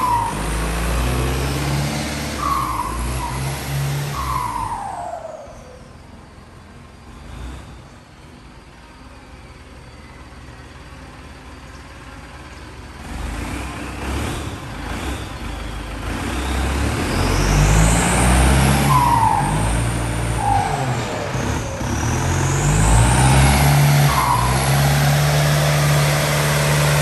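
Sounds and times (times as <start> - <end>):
tractor diesel engine running: 0.0 - 27.0
brief squeals: 2.4 - 6.1.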